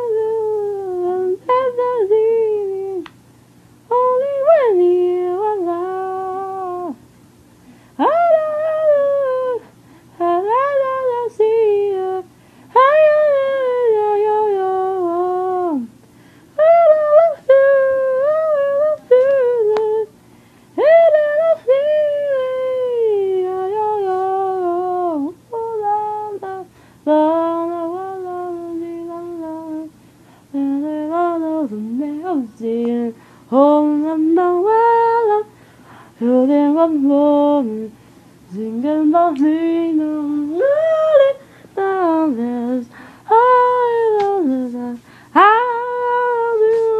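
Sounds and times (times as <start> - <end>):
woman humming slow melody: 38.5 - 46.9.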